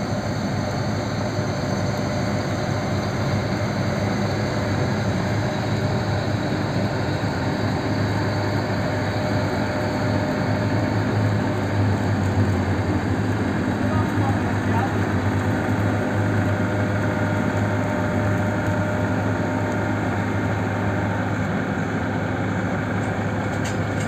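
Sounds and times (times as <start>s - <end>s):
combine harvester running: 0.0s - 24.0s.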